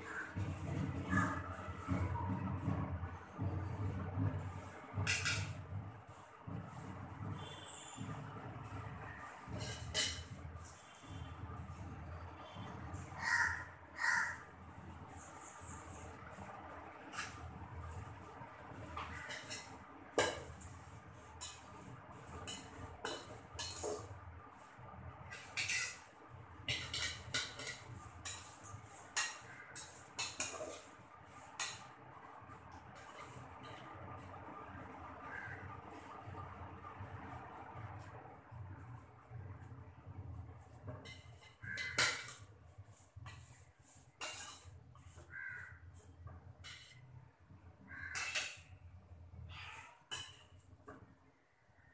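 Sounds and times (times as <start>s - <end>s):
metal ladle scraping a pot: 9.4s - 10.9s, 19.0s - 20.6s, 21.3s - 24.1s, 25.3s - 31.9s, 40.9s - 47.0s, 48.1s - 48.7s
crows cawing: 13.2s - 14.5s, 35.3s - 35.6s, 41.6s - 42.1s, 45.3s - 45.8s, 47.9s - 48.4s.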